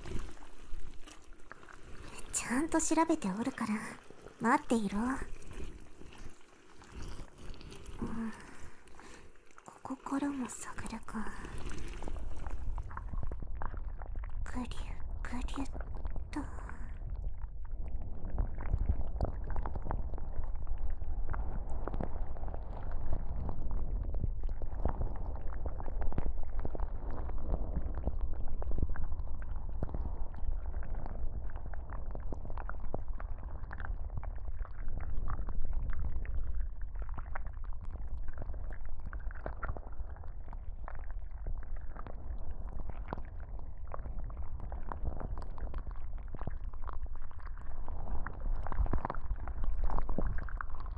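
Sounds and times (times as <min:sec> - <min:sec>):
wet squishing and rubbing: 0:00.0 - 0:13.4
small crackles: 0:00.0 - 0:50.9
low rumble: 0:10.7 - 0:50.9.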